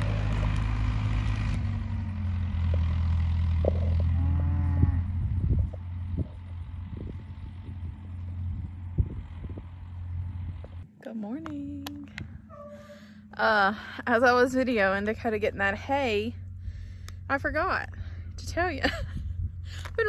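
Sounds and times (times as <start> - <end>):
engine humming: 0.0 - 20.0
cow mooing: 3.6 - 5.4, 12.5 - 13.2.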